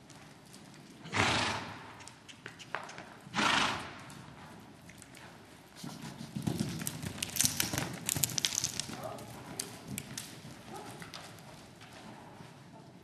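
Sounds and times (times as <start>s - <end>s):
horse hooves thudding on sand: 4.0s - 12.7s
sharp crackling clicks: 6.8s - 9.0s.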